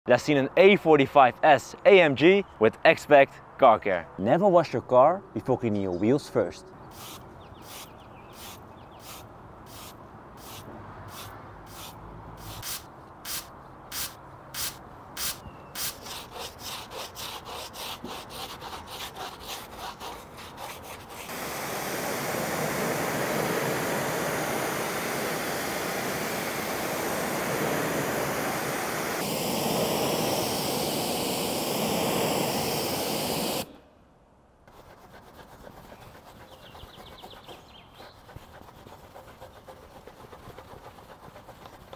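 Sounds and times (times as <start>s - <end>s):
pressure washer spraying wheel: 7.0s - 16.4s, 21.0s - 33.7s
brush scrubbing wheel: 34.7s - 41.9s.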